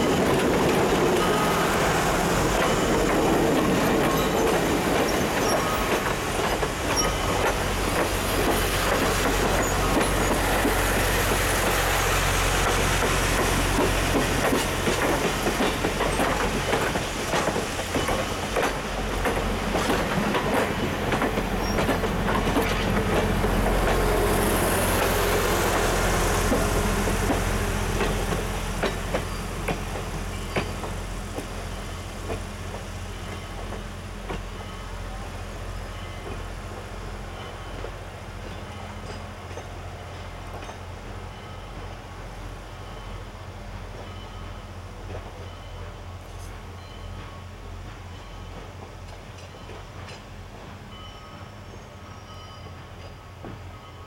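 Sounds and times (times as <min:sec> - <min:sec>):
train wheels rumbling on rail: 0:00.0 - 0:54.0
wheels clicking over rail joints: 0:02.0 - 0:12.0, 0:12.6 - 0:31.6.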